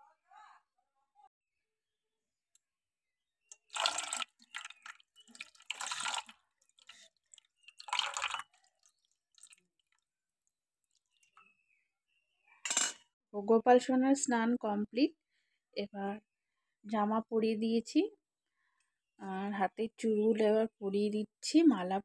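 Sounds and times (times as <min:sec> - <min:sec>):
water splashing into metal bowl: 0:03.5 - 0:10.0
faint water drips: 0:03.5 - 0:11.5.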